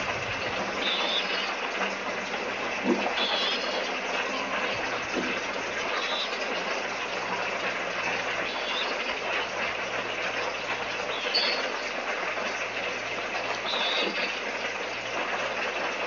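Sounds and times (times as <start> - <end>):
high chirps: 11.1 - 11.8.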